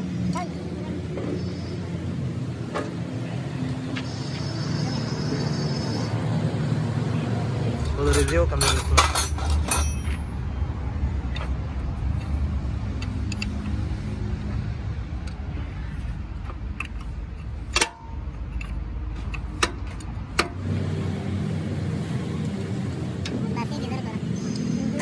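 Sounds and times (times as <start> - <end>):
metal tools clinking: 7.8 - 10.5.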